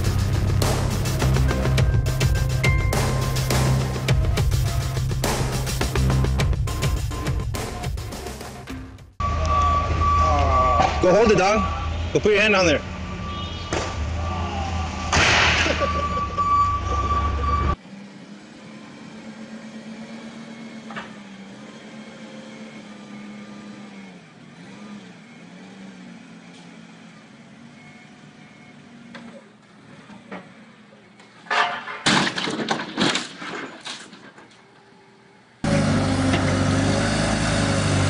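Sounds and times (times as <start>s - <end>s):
crate crashing to the ground: 15.1s - 15.8s, 32.0s - 34.4s
forklift engine running: 15.8s - 31.0s, 35.5s - 38.0s.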